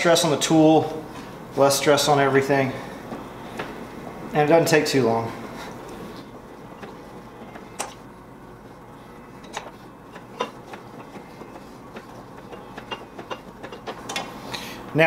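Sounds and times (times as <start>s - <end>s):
hand-cranked ring roller running: 6.6s - 8.0s, 8.6s - 14.5s.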